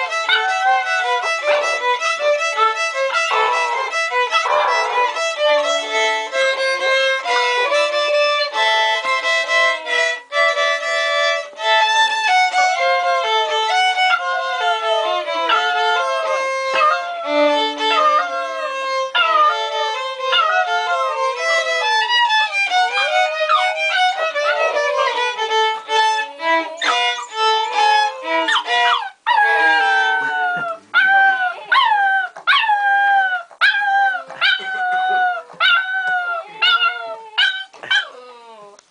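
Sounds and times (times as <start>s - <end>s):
puppies howling and whining: 0.0s - 6.0s, 13.7s - 38.8s
violin playing a tune: 0.0s - 31.6s.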